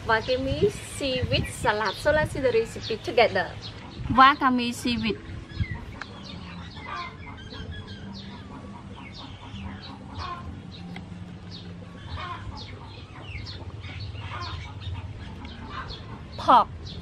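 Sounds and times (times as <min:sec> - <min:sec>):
chickens clucking: 0:00.0 - 0:17.0
low steady hum: 0:00.0 - 0:17.0.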